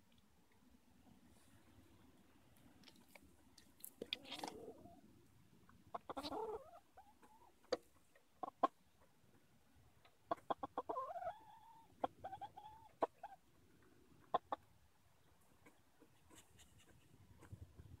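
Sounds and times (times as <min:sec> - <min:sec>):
hen clucking: 0:04.0 - 0:05.0, 0:05.8 - 0:09.0, 0:10.2 - 0:13.5, 0:14.1 - 0:14.8
drawn-out hen call: 0:04.0 - 0:05.1, 0:05.8 - 0:07.6, 0:10.2 - 0:13.5.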